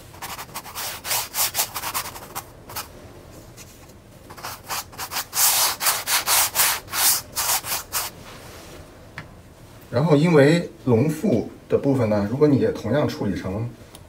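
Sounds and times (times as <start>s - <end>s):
paintbrush scrubbing canvas: 0.0s - 2.9s, 3.6s - 8.2s.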